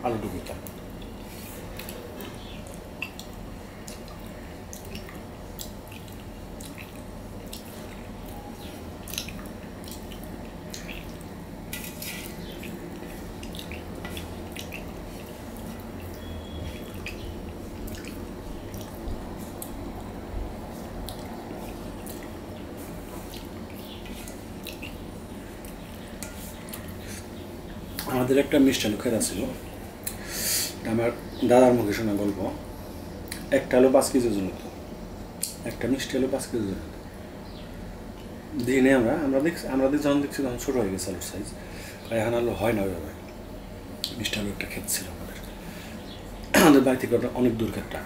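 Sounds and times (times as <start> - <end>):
chewing and lip-smacking: 0.6 - 19.8, 20.8 - 22.4, 23.1 - 27.2.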